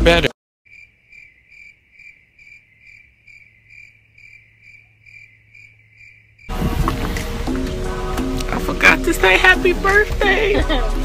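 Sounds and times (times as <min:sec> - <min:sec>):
rhythmic soft chirping: 0:00.7 - 0:06.5.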